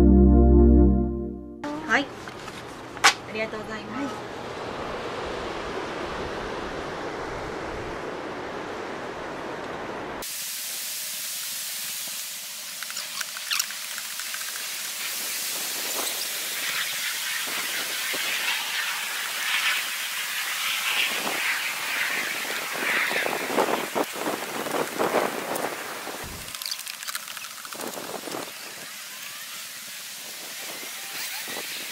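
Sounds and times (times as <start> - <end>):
steady low noise: 0.0 - 1.6
bright steady hiss: 10.2 - 31.9.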